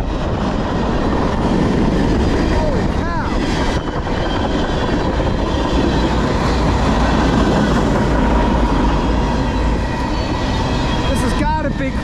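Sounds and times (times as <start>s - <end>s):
thin steady whine: 0.0s - 12.0s
steel wheels on rail: 4.8s - 11.7s.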